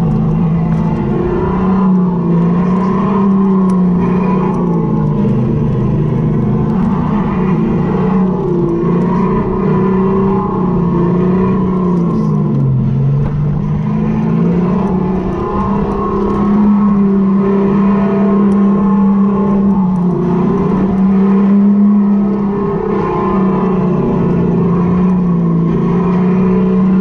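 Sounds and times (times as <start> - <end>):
rough low rumble: 0.0 - 27.0.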